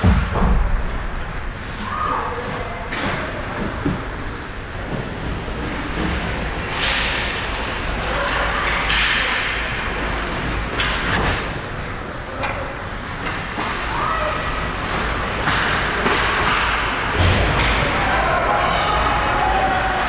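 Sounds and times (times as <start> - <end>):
thuds: 0.0 - 1.5.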